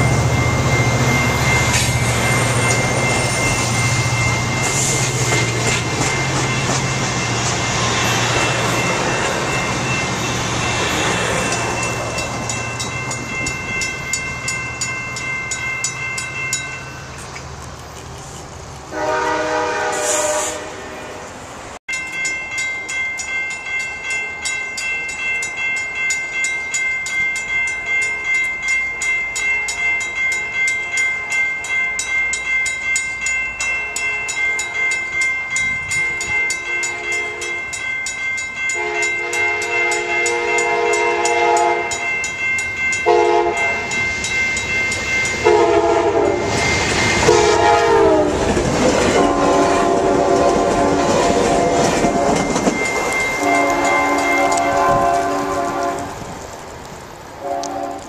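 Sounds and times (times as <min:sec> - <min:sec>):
crossing bell ringing: 0:00.0 - 0:17.4, 0:18.2 - 0:56.3
train rumble: 0:00.0 - 0:58.0
locomotive air horn: 0:18.9 - 0:21.4, 0:38.8 - 0:42.0, 0:43.1 - 0:43.9, 0:45.4 - 0:46.5, 0:47.2 - 0:48.4, 0:49.2 - 0:52.4, 0:53.4 - 0:56.2, 0:57.4 - 0:58.0.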